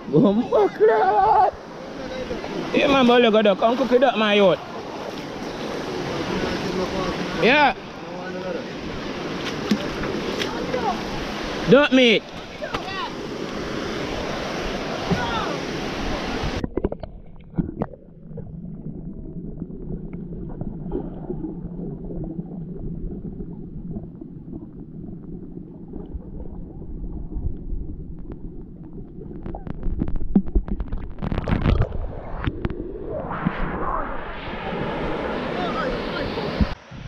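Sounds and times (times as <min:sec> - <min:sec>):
muffled water rumbling and gurgling: 0:12.4 - 0:37.0.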